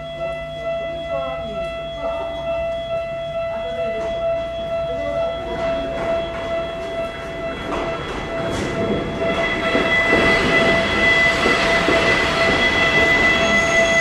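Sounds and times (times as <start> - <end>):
electric train whine: 0.0 - 14.0
train wheels clattering on rails: 5.4 - 14.0.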